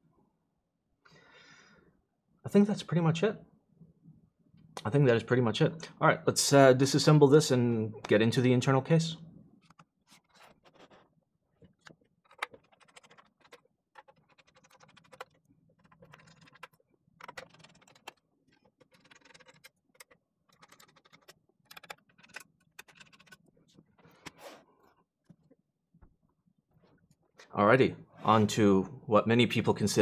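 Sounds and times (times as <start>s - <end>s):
keyboard being taken apart: 9.6s - 25.6s.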